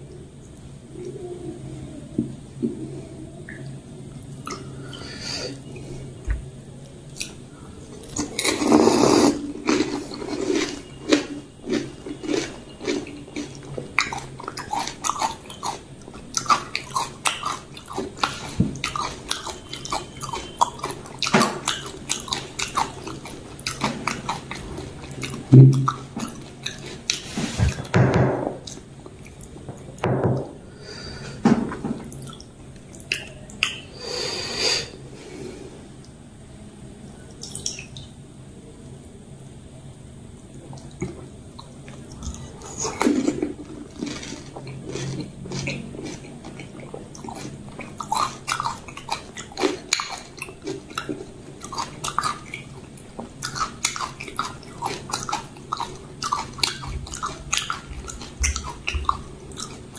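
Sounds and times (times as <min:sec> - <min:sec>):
crunchy food chewing: 0:07.1 - 0:27.9, 0:40.6 - 0:59.9.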